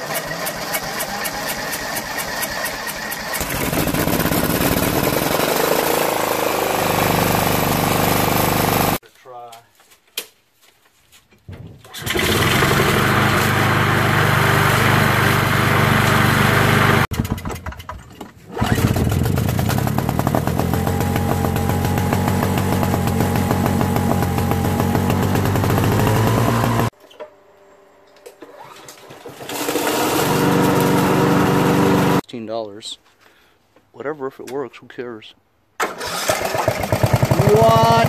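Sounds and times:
small engines running: 0.0s - 9.0s, 18.6s - 26.9s
snowblower engine running: 0.0s - 9.0s, 12.0s - 17.1s, 18.6s - 26.9s, 29.2s - 32.2s, 35.8s - 38.0s.

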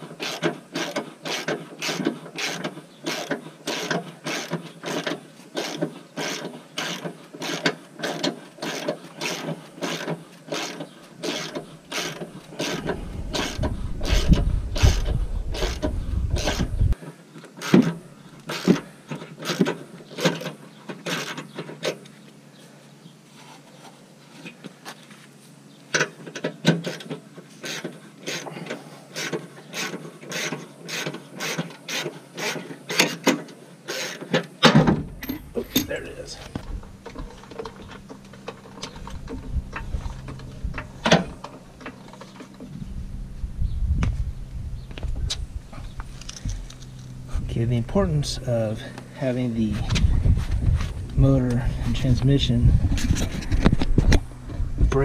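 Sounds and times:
low rumble: 12.4s - 17.0s, 35.0s - 55.0s.

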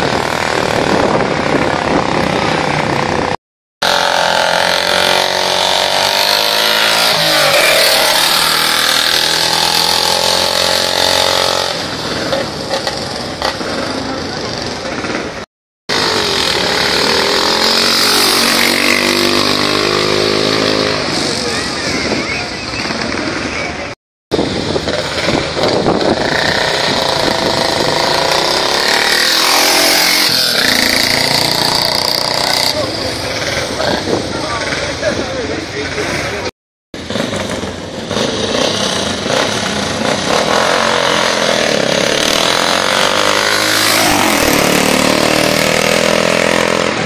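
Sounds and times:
motorcycle engine passing by: 0.0s - 21.7s, 24.4s - 35.1s, 37.0s - 47.0s.

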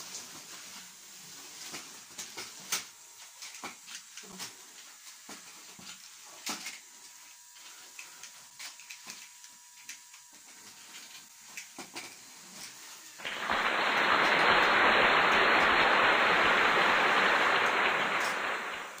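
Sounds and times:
toy robot clicks and whirring: 2.2s - 12.8s
loud hissing rush: 13.2s - 19.0s.

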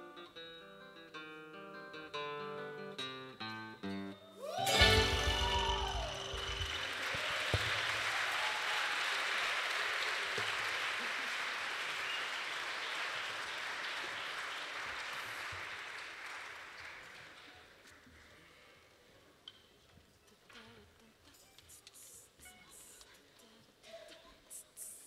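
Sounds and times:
audience applauding: 4.6s - 18.3s
music ending: 4.7s - 7.1s.

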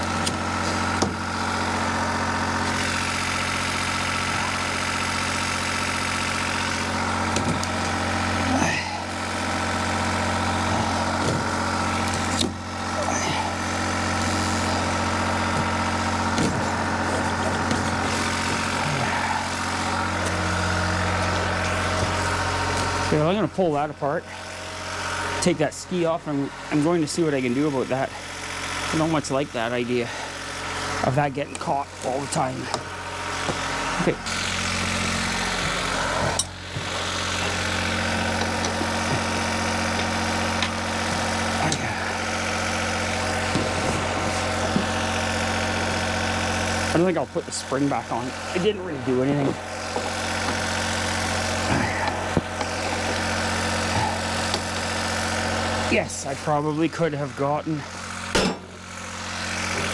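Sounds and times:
generator engine idling: 0.0s - 59.9s.

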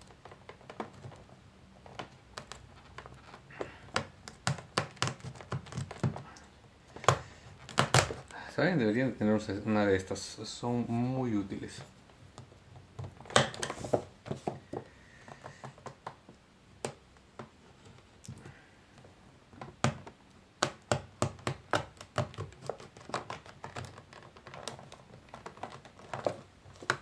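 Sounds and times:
packaging clicks and taps: 0.0s - 8.3s, 12.3s - 18.5s, 19.5s - 27.0s.

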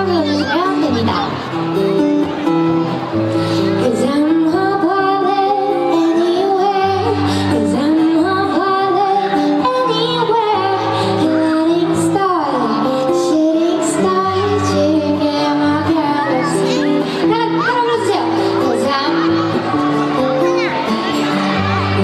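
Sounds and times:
woman singing pop melody: 3.4s - 20.2s.

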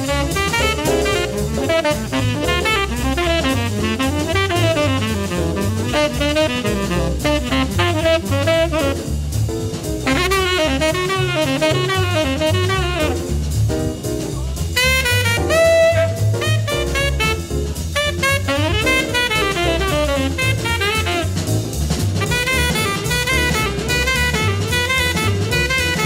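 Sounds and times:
tenor saxophone improvising: 0.0s - 9.2s, 10.0s - 13.5s, 14.7s - 26.0s
jazz drum kit: 0.0s - 26.0s
walking bass: 0.0s - 26.0s.

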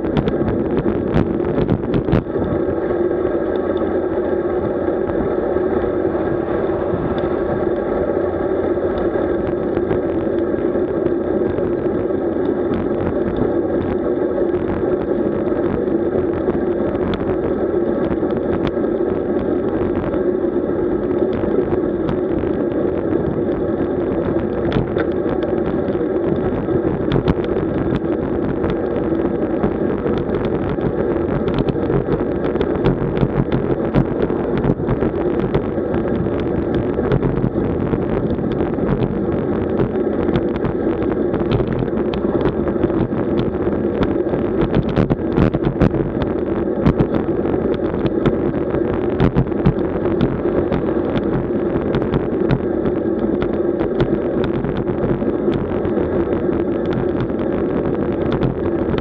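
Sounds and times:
wind and road noise: 0.0s - 59.0s.

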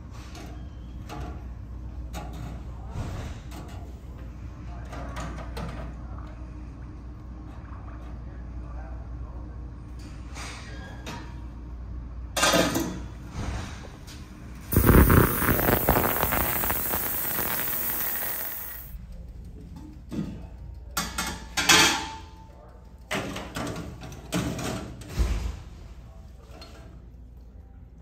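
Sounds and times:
loud hiss: 14.7s - 19.0s.

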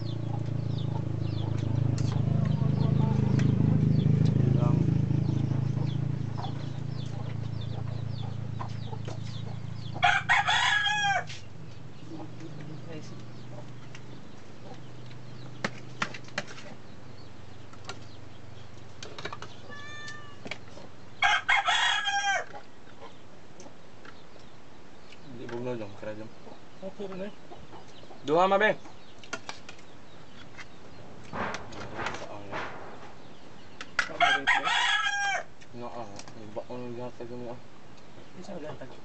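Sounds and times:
rooster crowing: 9.9s - 11.4s, 19.7s - 20.4s, 21.2s - 22.6s, 34.1s - 35.5s.

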